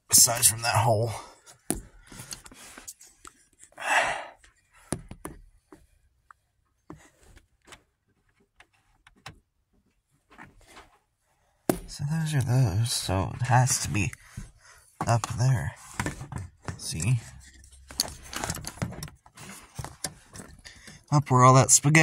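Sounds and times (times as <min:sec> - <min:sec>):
light clicks taps and rustles: 0:13.9 - 0:21.2.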